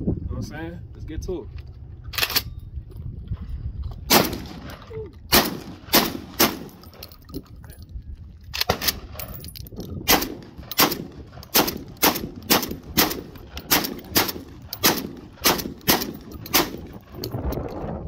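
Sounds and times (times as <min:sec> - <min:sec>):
shotgun fired rapidly: 0:05.3 - 0:06.7, 0:10.1 - 0:16.8.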